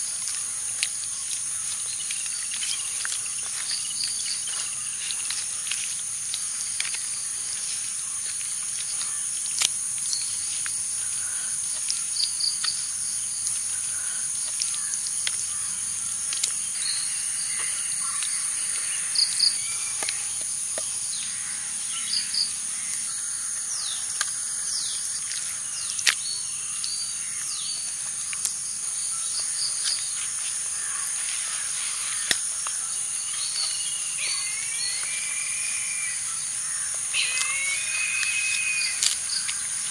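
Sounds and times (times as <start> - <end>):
high-pitched insect drone: 30.1 - 39.9
bird chirps: 33.0 - 39.9.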